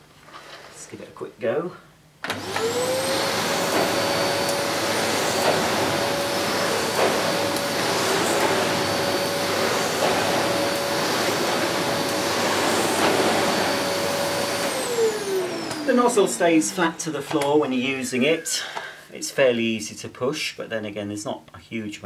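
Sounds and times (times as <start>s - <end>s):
vacuum cleaner motor whine: 2.2s - 17.2s
nozzle pushed over carpet: 2.4s - 16.7s.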